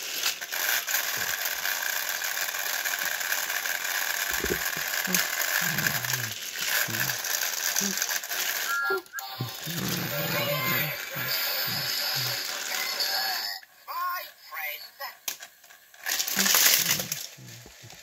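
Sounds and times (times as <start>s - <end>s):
toy train motors whirring: 0.0s - 18.0s.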